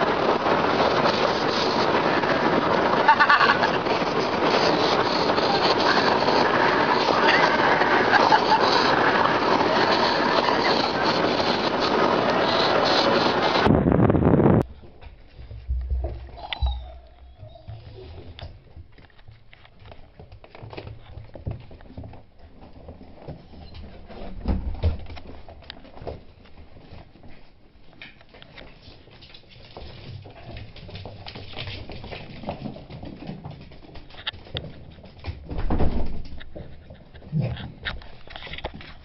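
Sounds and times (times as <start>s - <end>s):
dog claws clicking on wooden floor: 27.9s - 39.0s.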